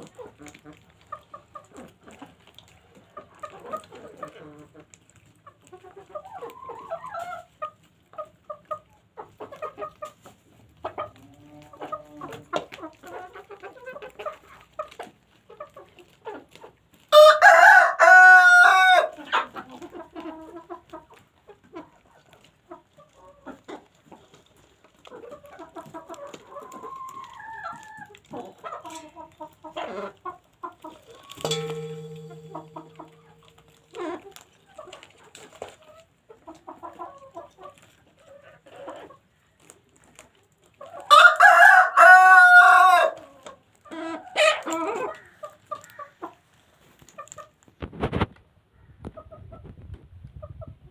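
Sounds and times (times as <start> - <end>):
hens clucking: 0.0 - 17.1, 18.4 - 47.7, 48.7 - 50.9
rooster crowing: 17.2 - 19.1, 41.1 - 43.2.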